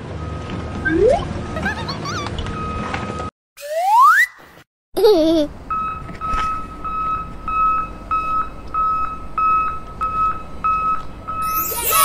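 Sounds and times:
short electronic beeps: 5.7 - 12.0.

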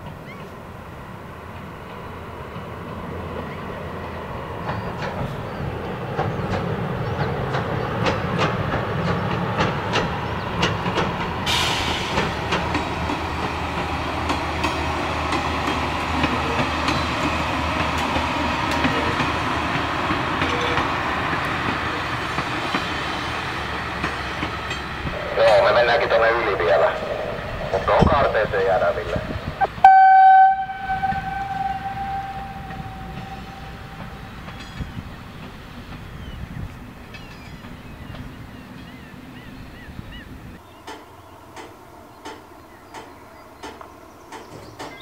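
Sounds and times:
railbus engine humming: 0.0 - 45.0
train wheels clacking over rail joints: 6.1 - 25.6, 40.8 - 45.0
hissing rush: 16.7 - 29.6.

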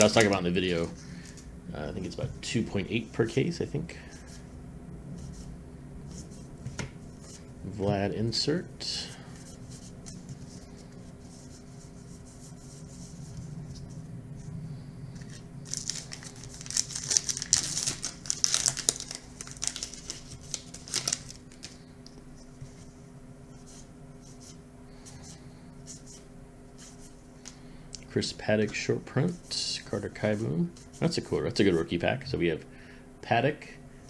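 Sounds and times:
cards rustling: 0.0 - 1.5, 15.2 - 21.8
wrapper being torn and crinkled: 15.2 - 21.8.

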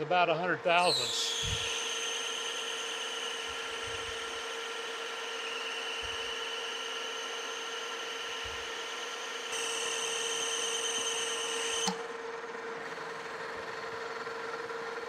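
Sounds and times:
higher whine: 0.0 - 11.0
metal lathe machine whine: 0.0 - 15.0.

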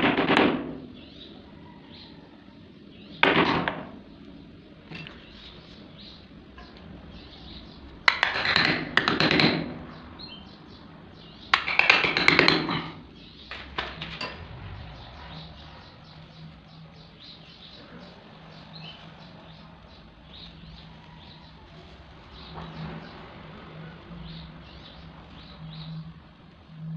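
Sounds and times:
clattering and scraping: 11.4 - 17.6.

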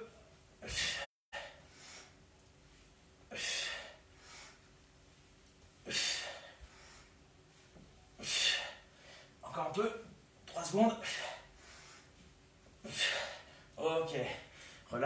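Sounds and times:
man exhaling forcefully: 0.6 - 2.1, 3.3 - 4.0, 5.8 - 6.6
faint breathing: 0.6 - 2.2, 3.3 - 4.8, 5.8 - 9.4, 11.0 - 14.9.

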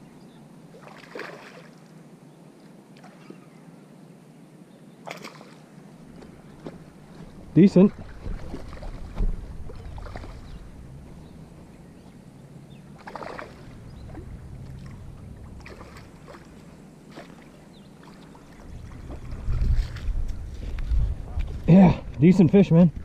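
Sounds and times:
fish splashing in water: 0.7 - 1.8, 5.0 - 5.6, 7.9 - 11.0, 12.8 - 20.0
low rumble on microphone: 6.0 - 23.0.

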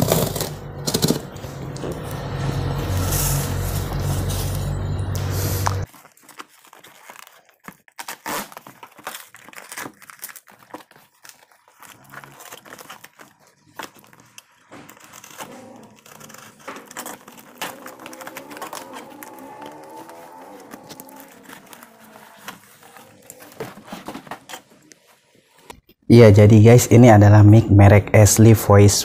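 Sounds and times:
cardboard box tearing: 0.0 - 2.1, 5.6 - 25.6.

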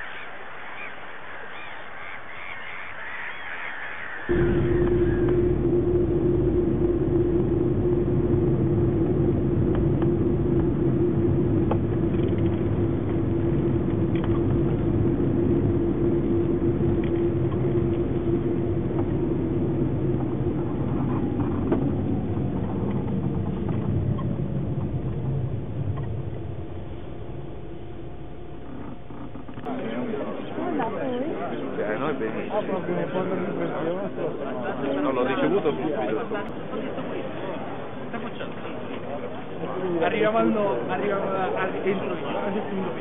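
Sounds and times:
road rumble: 0.0 - 30.9
car engine hum: 4.3 - 29.7.

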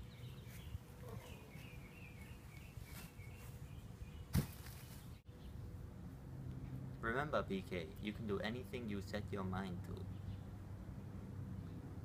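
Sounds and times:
small birds chirping: 0.0 - 5.7, 10.0 - 10.6
sharp thump: 4.3 - 4.7.

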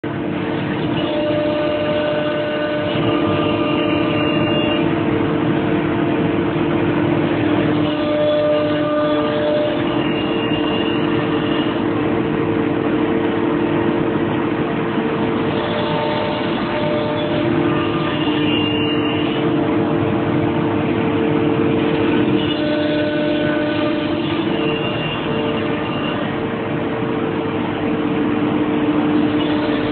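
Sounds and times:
router spindle cutting wood: 15.4 - 19.5, 21.8 - 26.3.

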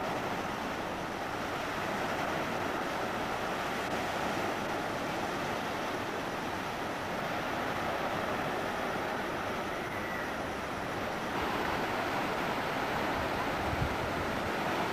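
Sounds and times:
small waves breaking on sand: 0.0 - 14.9
wind on microphone: 11.3 - 14.9.

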